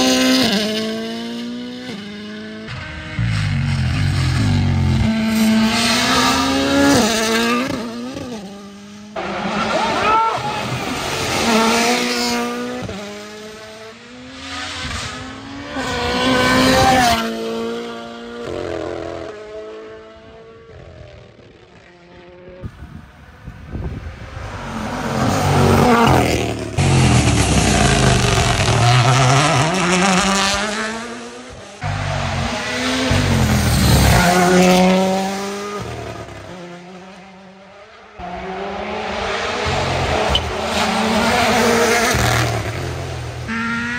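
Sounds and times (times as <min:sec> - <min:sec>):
rally car engine revving past: 0:10.6 - 0:21.1, 0:24.3 - 0:37.4.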